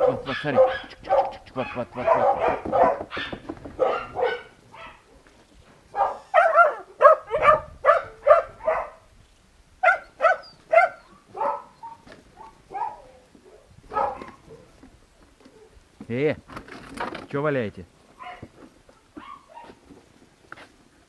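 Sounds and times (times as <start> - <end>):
puppies yapping: 0.0 - 5.2, 5.9 - 9.0, 9.8 - 14.8, 18.2 - 19.8.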